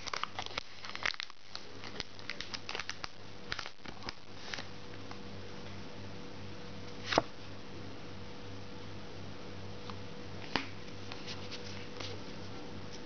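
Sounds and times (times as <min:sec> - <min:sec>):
plastic wrapper crinkling: 0:00.0 - 0:04.7
faint steady hum: 0:00.0 - 0:13.0.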